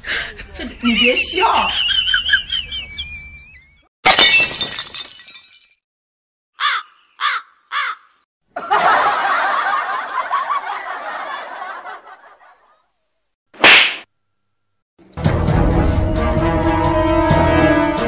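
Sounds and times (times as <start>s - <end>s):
canned crowd laughter: 8.6s - 12.9s.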